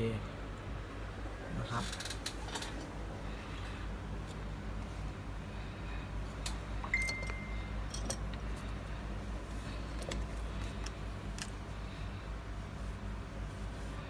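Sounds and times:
steady low hum: 0.0 - 14.0
short electronic beep: 6.9 - 7.7.

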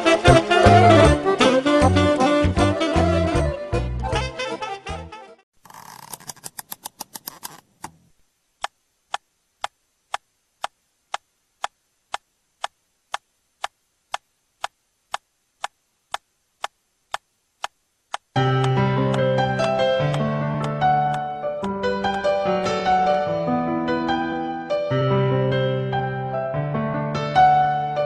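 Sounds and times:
steady sharp ticking: 8.6 - 22.2.

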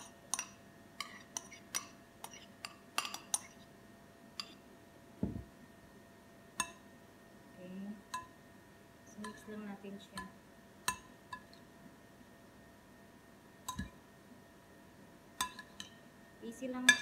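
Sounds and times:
metal spoon clinking on bowl: 0.0 - 3.6, 4.4 - 4.6
dull thump: 5.2 - 5.5.

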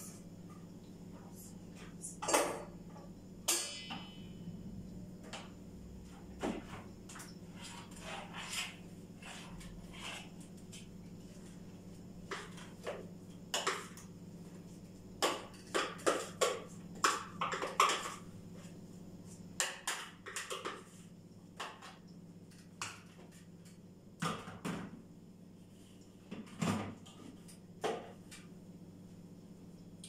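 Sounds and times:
steady low hum: 0.0 - 19.7.

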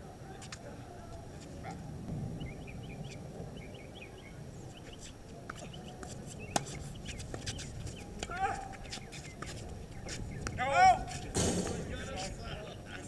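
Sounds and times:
birds chirping: 0.6 - 13.0
low rumble: 1.8 - 4.7
tennis ball knock: 5.4 - 7.5.

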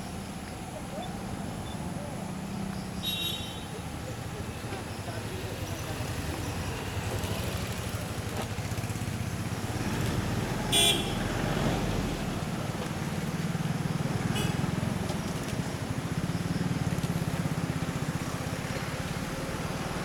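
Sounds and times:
horn toot: 10.7 - 11.3.

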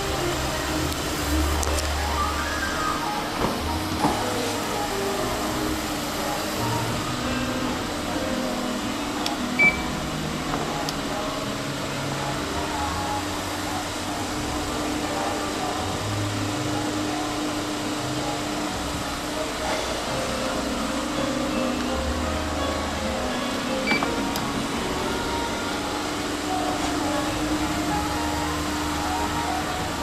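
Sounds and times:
faint voices: 0.0 - 30.0
ventilation hum: 0.0 - 30.0
short high beep: 9.6 - 9.9.

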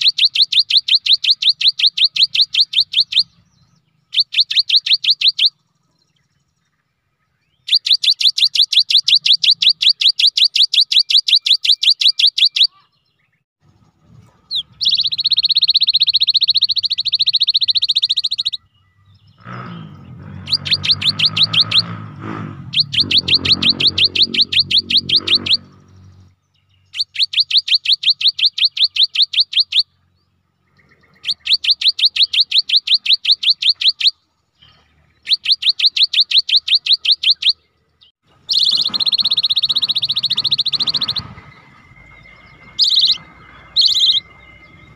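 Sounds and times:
bird singing high repeated notes: 0.0 - 44.9
bird trill: 0.0 - 44.9
lower-pitched bird sound: 0.0 - 44.9.

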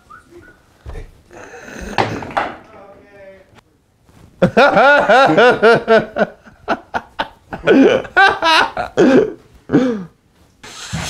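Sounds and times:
hearty laughter: 4.4 - 9.4.

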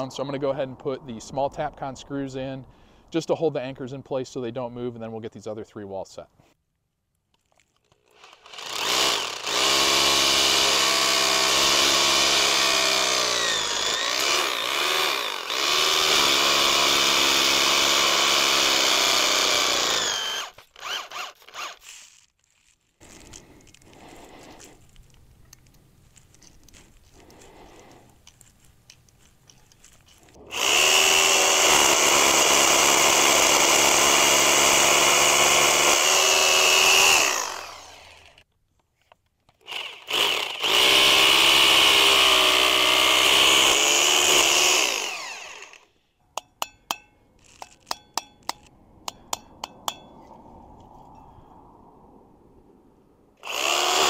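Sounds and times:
power drill boring into concrete: 8.1 - 22.2, 30.4 - 38.4, 39.6 - 45.9, 53.4 - 54.0.

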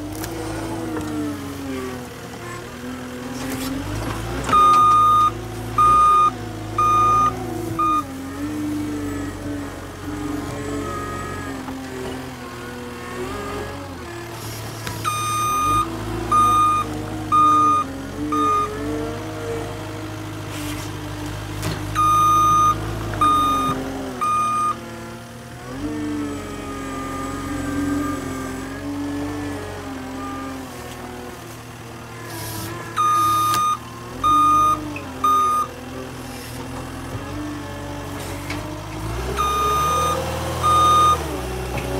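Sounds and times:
diesel engine revving: 0.0 - 41.9
backup alarm beeps: 4.6 - 8.0, 15.1 - 18.7, 22.0 - 24.8, 33.0 - 35.7, 39.4 - 41.3.

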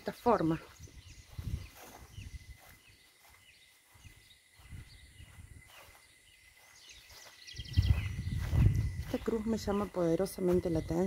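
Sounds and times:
bird chirps: 0.0 - 11.0
low rumbling on microphone: 0.8 - 2.7, 7.6 - 9.8.

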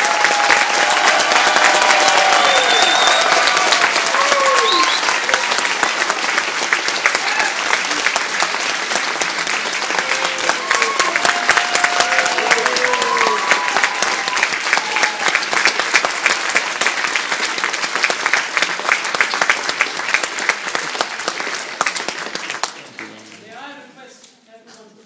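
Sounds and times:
crowd calling out: 0.0 - 5.5, 10.0 - 15.4
audience clapping: 0.0 - 23.7.

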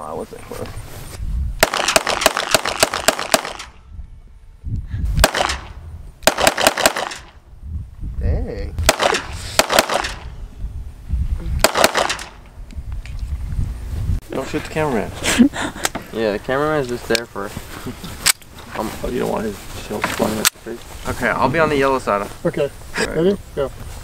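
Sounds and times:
pistol shots: 1.6 - 3.8, 5.2 - 7.4, 8.8 - 10.3, 11.6 - 12.4.

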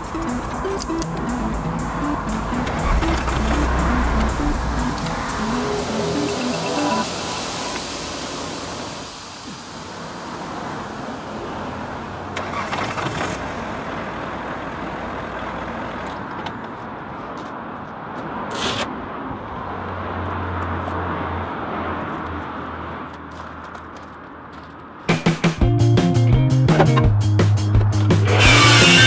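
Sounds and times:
sharp clicks: 0.0 - 5.2
car engine running: 0.0 - 6.7, 26.8 - 29.0
low hum: 0.0 - 9.9.

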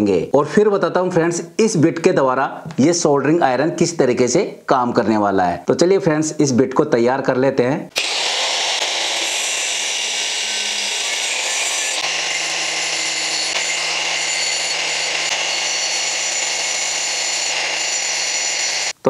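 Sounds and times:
angle grinder grinding metal: 7.9 - 19.0.

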